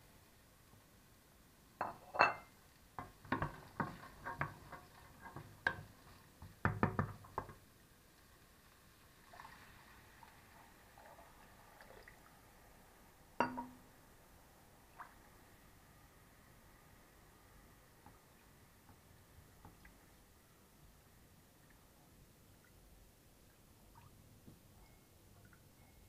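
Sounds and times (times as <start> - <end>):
wooden spoon knocking in metal pot: 3.0 - 7.6, 13.4 - 13.8
water pouring from jug: 9.3 - 12.3.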